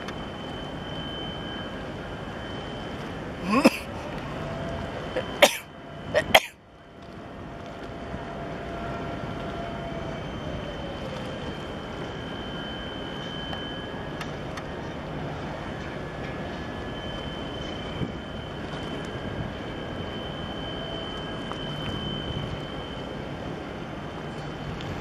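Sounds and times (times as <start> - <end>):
motor and water noise: 0.0 - 25.0
thin high whine: 0.0 - 25.0
person coughing: 3.4 - 3.9, 5.2 - 6.6.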